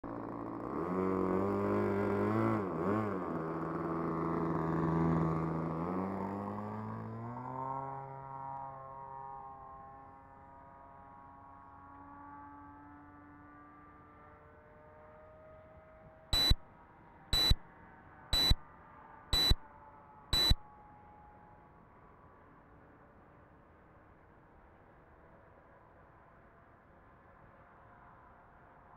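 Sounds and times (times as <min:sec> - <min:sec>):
distant model airplane engine drone: 0:00.1 - 0:10.1, 0:16.4 - 0:16.6, 0:17.4 - 0:17.6, 0:18.4 - 0:18.6, 0:19.4 - 0:19.6, 0:20.4 - 0:20.6
high-pitched electronic beeps: 0:16.4 - 0:16.6, 0:17.4 - 0:17.6, 0:18.4 - 0:18.6, 0:19.4 - 0:19.6, 0:20.4 - 0:20.6.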